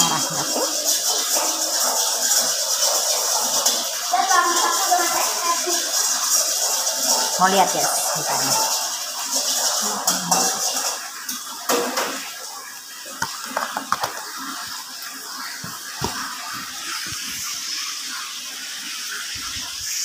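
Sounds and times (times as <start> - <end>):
kitchenware knocking and clinking: 0.0 - 3.9, 11.7 - 12.3, 13.1 - 14.7.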